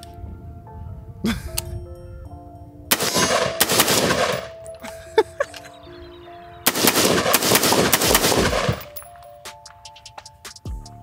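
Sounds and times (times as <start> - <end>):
background music: 0.0 - 11.0
rifle gunshots: 2.9 - 4.6, 6.7 - 8.9.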